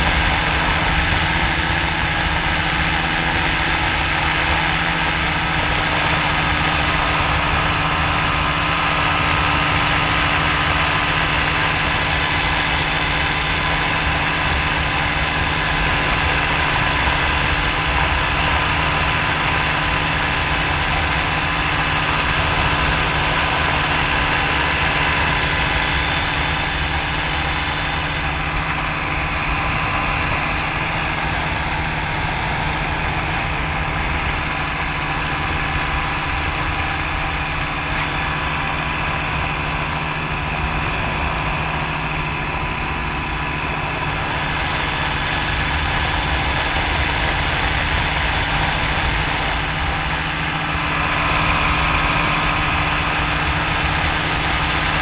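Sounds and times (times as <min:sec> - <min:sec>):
aircraft engine droning: 0:00.0 - 0:55.0.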